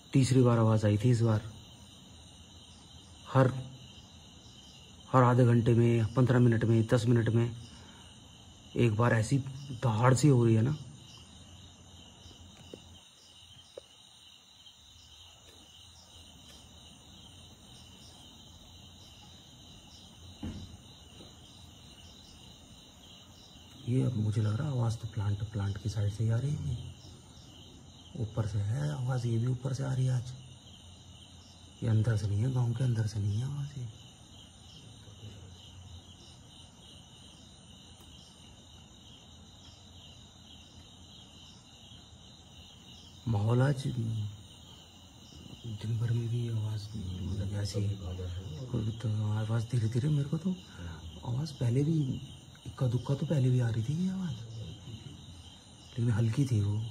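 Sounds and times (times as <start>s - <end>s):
crickets chirping: 0.0s - 56.9s
faint low hum: 0.0s - 56.9s
soft low thump: 20.3s - 21.4s.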